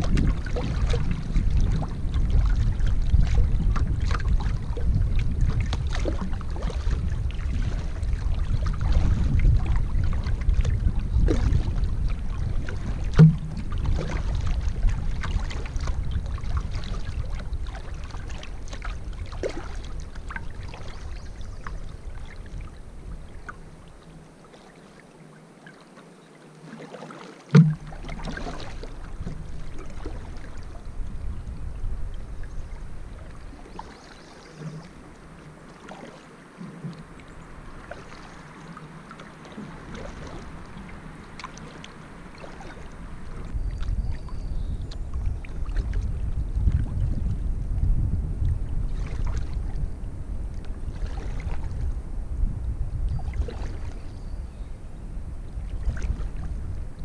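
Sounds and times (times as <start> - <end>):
wind rumble on microphone: 0.0 - 24.5, 27.6 - 57.0
water splashes and drips: 0.0 - 30.8, 33.1 - 43.9, 50.6 - 51.7
hollow knocks on canoe: 12.5 - 14.6, 27.5 - 30.5.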